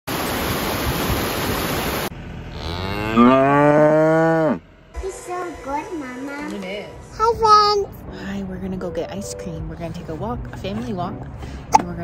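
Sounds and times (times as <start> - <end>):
cow mooing: 2.5 - 4.7.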